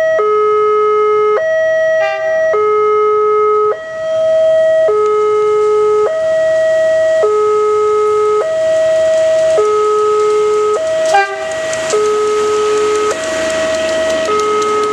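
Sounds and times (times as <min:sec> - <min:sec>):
level-crossing alarm two-tone warning: 0:00.0 - 0:14.9
approaching train: 0:02.0 - 0:02.5, 0:03.7 - 0:07.2, 0:07.8 - 0:14.9.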